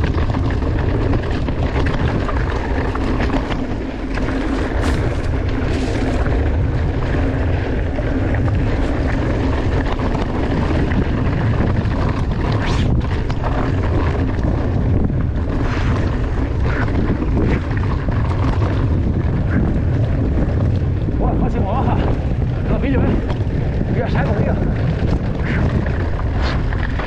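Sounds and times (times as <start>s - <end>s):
bike clicks and rattles: 0.0s - 27.0s
wind buffeting microphone: 0.0s - 27.0s.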